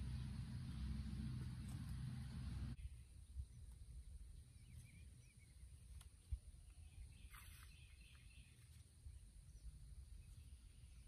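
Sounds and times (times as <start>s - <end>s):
faint low rumble: 0.0s - 7.5s
faint bird chirps: 4.3s - 11.0s.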